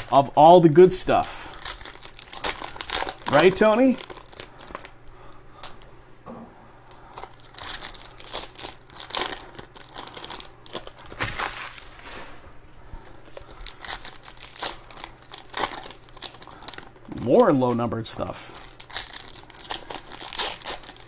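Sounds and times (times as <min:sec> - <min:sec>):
cards rustling: 0:00.0 - 0:05.0
foil wrappers crinkling and tearing: 0:00.0 - 0:05.0, 0:07.1 - 0:12.4, 0:13.2 - 0:21.0.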